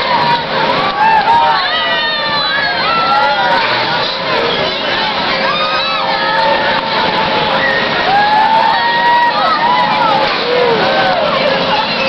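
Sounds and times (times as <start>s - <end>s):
din of many voices: 0.0s - 12.0s.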